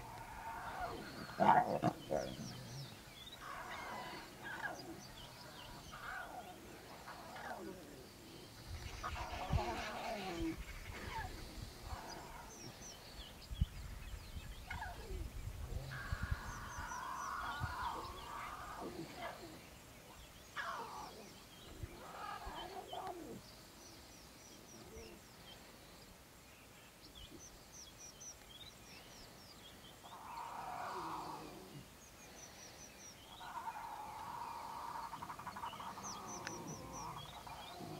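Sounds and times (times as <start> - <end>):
lion cubs calling: 0.0 - 5.0, 33.4 - 37.9
small birds chirping: 0.0 - 37.9.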